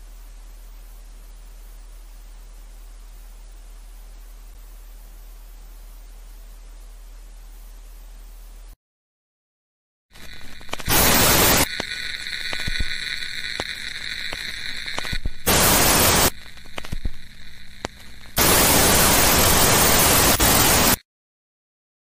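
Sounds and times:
static hiss bursts: 0.0s - 8.8s, 10.1s - 21.0s
steady hum with high whine: 0.0s - 8.8s, 10.2s - 21.0s
scattered clicks: 10.2s - 17.2s.

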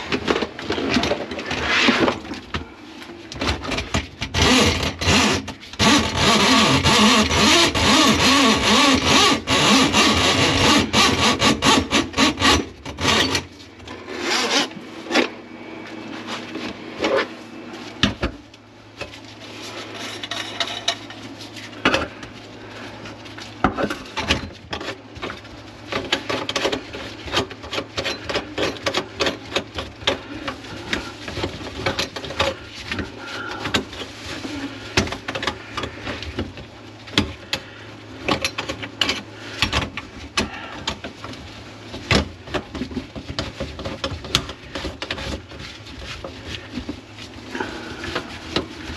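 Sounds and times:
drain-snake cable scraping: 0.6s - 2.3s.

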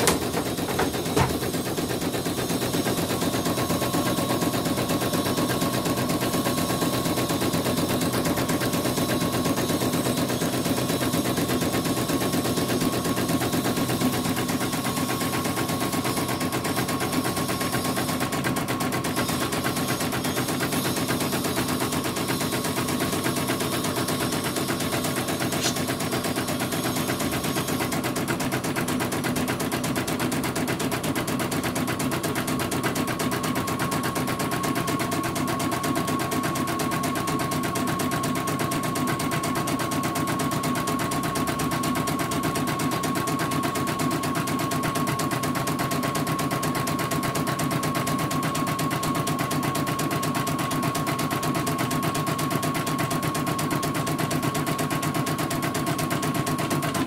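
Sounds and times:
embroidery machine stitching rattle: 0.0s - 57.0s.

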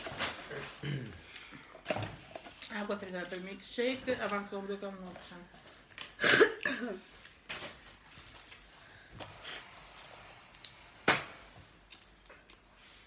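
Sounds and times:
paper packaging rustling: 0.0s - 0.8s, 7.5s - 8.8s.

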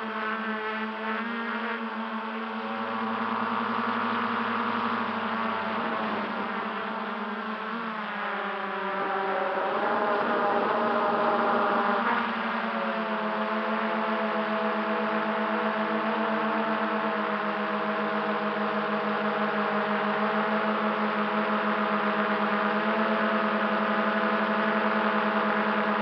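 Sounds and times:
drone motors whirring: 2.2s - 14.0s.

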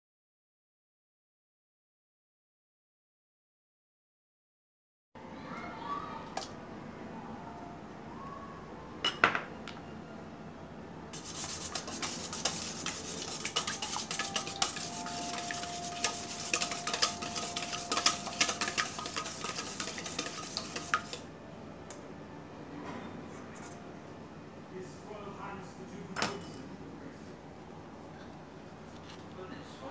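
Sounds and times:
whisk rattling in metal bowl: 11.2s - 21.2s
clinks on a metal bowl: 13.4s - 21.2s.

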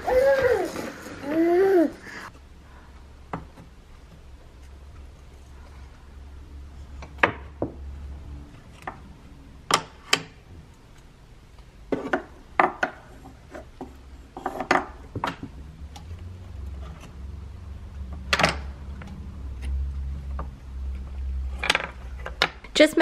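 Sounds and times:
wooden puzzle pieces knocking: 11.8s - 15.6s, 19.8s - 22.8s.

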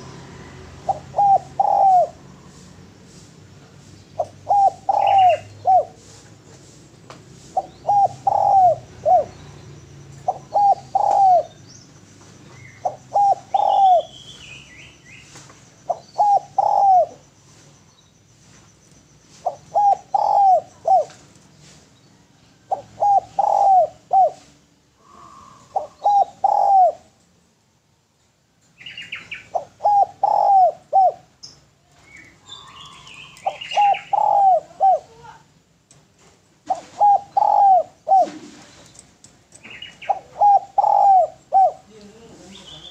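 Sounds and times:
dove cooing: 0.0s - 2.9s, 4.2s - 6.5s, 7.4s - 11.6s, 12.5s - 14.2s, 15.9s - 17.6s, 19.3s - 21.3s, 22.1s - 27.2s, 29.1s - 31.4s, 32.3s - 35.4s, 36.6s - 42.9s
small birds chirping: 0.0s - 27.3s, 28.6s - 42.9s.

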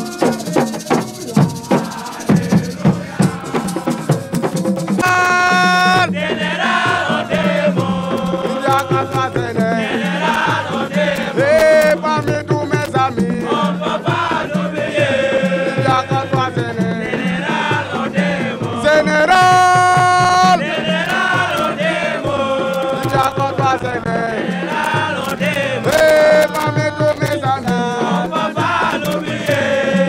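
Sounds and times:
man chanting a song: 0.0s - 6.6s, 8.2s - 10.0s, 11.3s - 13.7s, 15.5s - 17.2s, 18.7s - 20.8s, 22.8s - 24.4s, 25.6s - 30.0s
steady drum beat: 0.0s - 30.0s.

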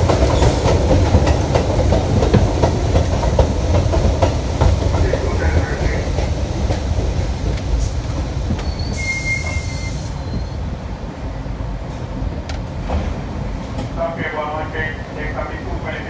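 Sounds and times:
subway train wheels rumbling: 0.0s - 16.0s
brake squeal with hiss: 8.6s - 10.6s.

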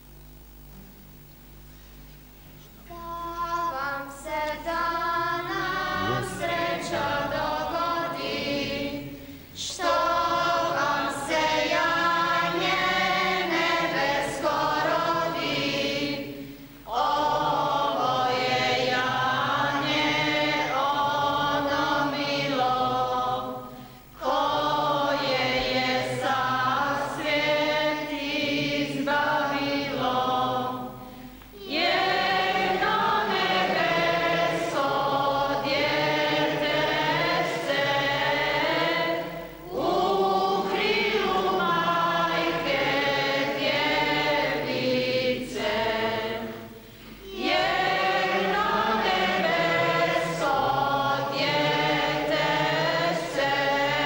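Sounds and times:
congregation singing a hymn: 2.9s - 54.0s.

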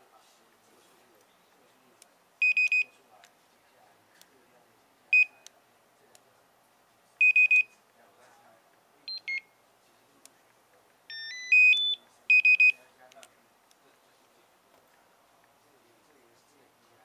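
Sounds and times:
barcode scanner beeping: 2.4s - 2.9s, 7.2s - 7.7s, 9.1s - 9.5s, 11.1s - 12.8s.

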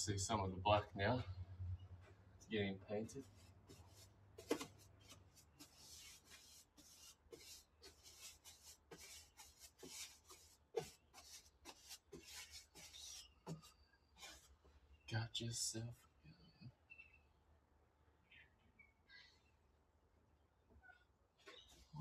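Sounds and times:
paintbrush scrubbing on metal: 3.0s - 14.6s.

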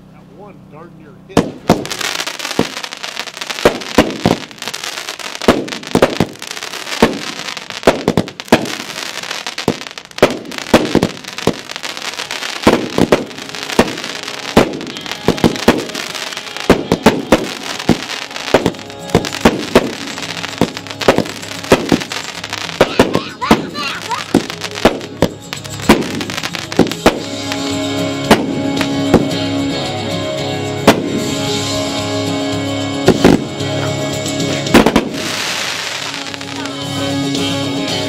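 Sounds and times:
continuous firework hiss: 1.2s - 38.0s
firework launch thumps: 1.3s - 2.9s, 3.6s - 4.8s, 5.4s - 11.8s, 12.6s - 27.7s, 28.3s - 29.4s, 30.8s - 31.3s, 33.1s - 33.5s, 34.6s - 36.6s
firework burst reports: 1.3s - 29.7s, 30.6s - 32.2s, 32.8s - 37.5s.

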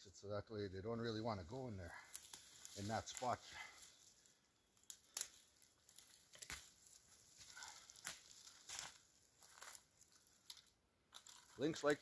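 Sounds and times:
twigs rustling: 1.0s - 12.0s
brushwood snapping: 2.0s - 3.4s, 4.8s - 12.0s.

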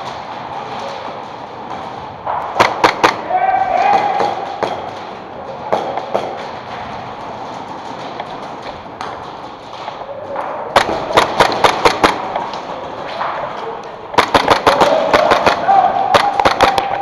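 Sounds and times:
airsoft gunshots: 2.5s - 5.1s, 10.7s - 13.0s, 14.1s - 17.0s.

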